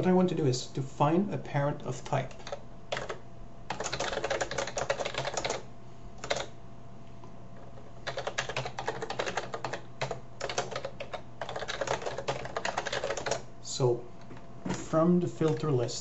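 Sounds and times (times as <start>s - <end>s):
low steady hum: 0.0s - 16.0s
keyboard typing clicks: 7.6s - 13.4s.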